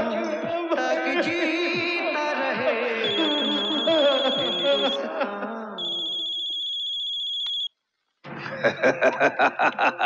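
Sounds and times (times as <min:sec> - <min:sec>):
electronic ringer trilling: 0:03.0 - 0:05.0, 0:05.8 - 0:07.7
man laughing loudly: 0:03.1 - 0:05.7, 0:08.3 - 0:10.0.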